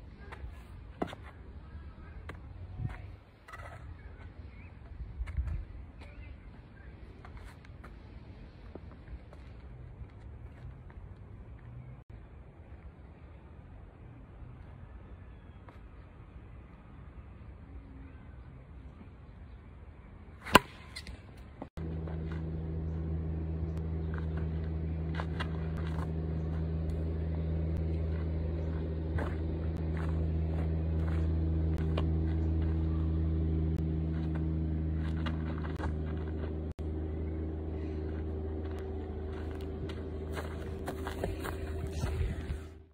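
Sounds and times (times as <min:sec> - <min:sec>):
bat hitting ball crack: 0:20.4 - 0:21.2
low motor hum: 0:20.4 - 0:42.9.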